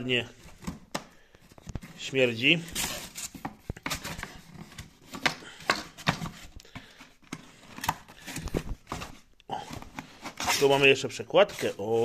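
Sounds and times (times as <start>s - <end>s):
cardboard boxes tapping and rustling: 2.8s - 10.7s.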